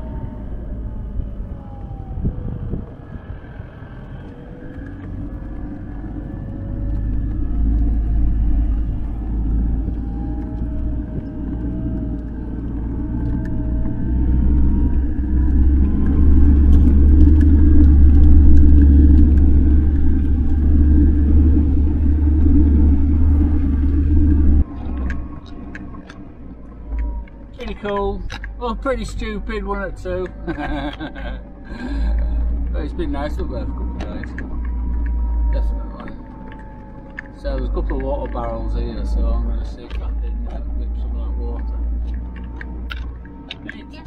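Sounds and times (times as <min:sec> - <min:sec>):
engine rumbling: 0:00.0 - 0:44.0
tyres on rough ground: 0:04.2 - 0:44.0.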